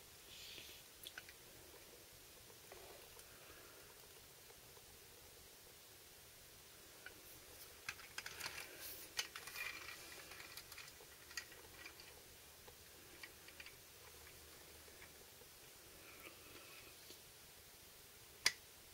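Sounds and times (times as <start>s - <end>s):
toy truck clicks and rattles: 7.8s - 12.2s, 13.2s - 13.8s.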